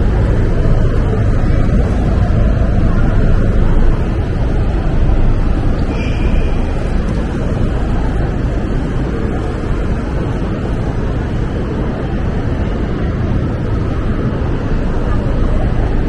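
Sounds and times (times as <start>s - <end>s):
street traffic rumble: 0.0s - 16.0s
faint high tone: 5.8s - 9.3s.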